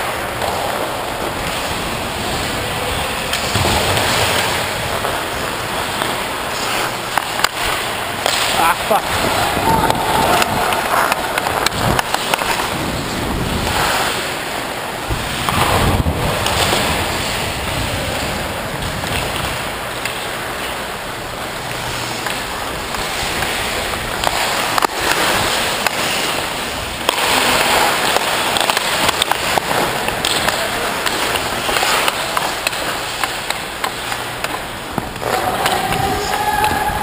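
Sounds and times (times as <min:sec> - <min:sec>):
skate blades scraping ice: 0:00.0 - 0:37.0
stick clicking on puck: 0:06.0 - 0:08.6, 0:09.8 - 0:12.7, 0:24.2 - 0:26.4, 0:27.0 - 0:36.8
wind on microphone: 0:09.0 - 0:12.0, 0:15.1 - 0:19.6.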